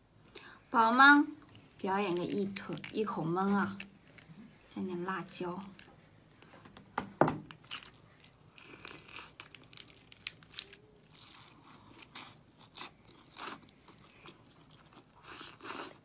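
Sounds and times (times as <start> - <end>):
chewing crunchy food: 7.6 - 16.0.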